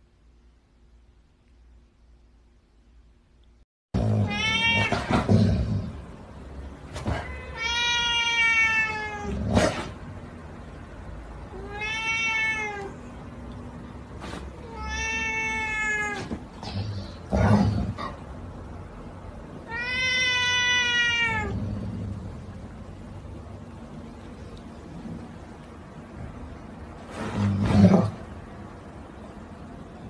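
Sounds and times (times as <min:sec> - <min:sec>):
kitten meowing: 0:14.7 - 0:16.2.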